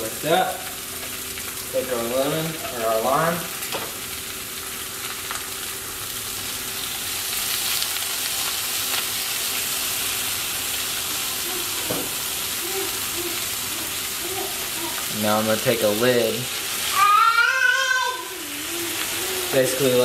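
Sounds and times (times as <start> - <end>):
fish and onions sizzling in pan: 0.0 - 20.0.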